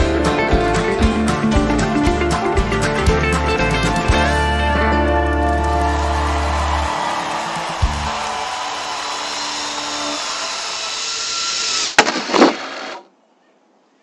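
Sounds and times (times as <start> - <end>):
guitar song: 0.0 - 8.7
drone propellers whirring: 7.9 - 12.0.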